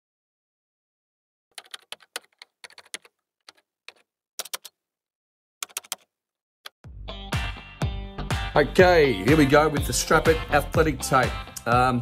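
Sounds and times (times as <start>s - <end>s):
computer keyboard typing: 1.5s - 4.8s, 5.6s - 6.1s.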